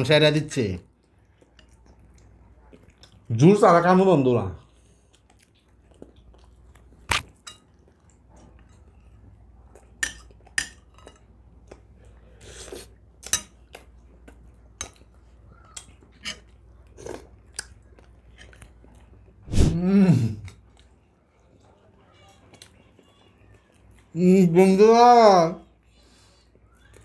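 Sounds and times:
chewing: 0.9s - 3.4s, 4.6s - 19.4s, 20.4s - 24.2s
spoon clinking on plates: 10.0s - 11.3s.

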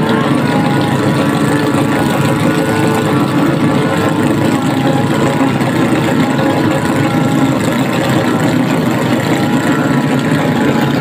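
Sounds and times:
outboard motors running hard: 0.0s - 11.0s
propellers churning water: 0.0s - 11.0s.

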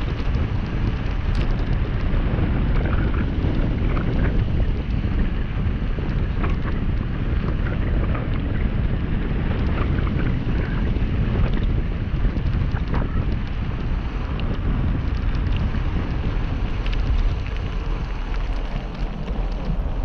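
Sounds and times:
wind buffeting microphone: 0.0s - 20.0s
small clicks from stones: 0.2s - 1.8s, 12.5s - 20.0s
tyres crunching over gravel: 14.0s - 20.0s.

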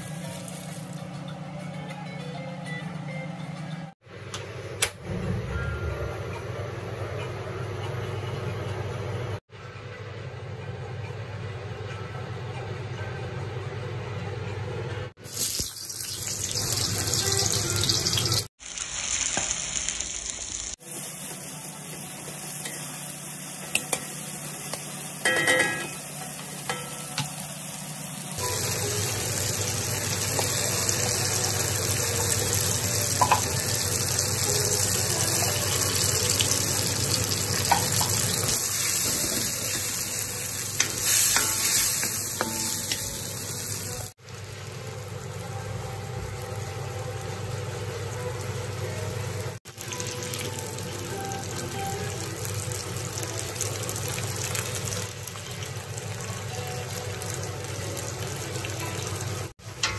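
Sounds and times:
fish frying in oil sizzling: 15.2s - 25.1s, 27.3s - 59.9s.

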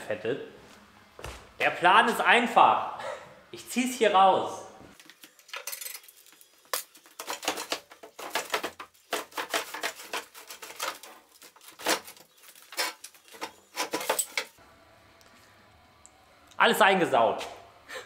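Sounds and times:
knocks and scrapes of handling a saw: 7.1s - 14.6s.

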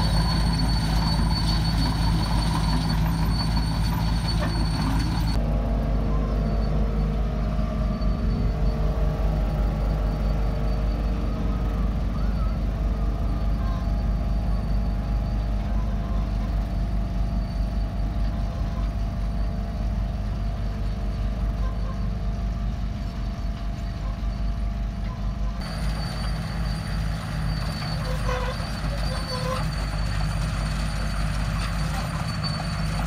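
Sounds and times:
diesel engines running: 0.0s - 33.0s.

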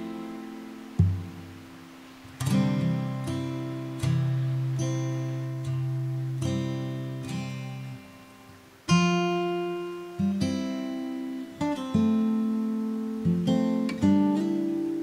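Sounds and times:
slow acoustic guitar: 0.0s - 15.0s.

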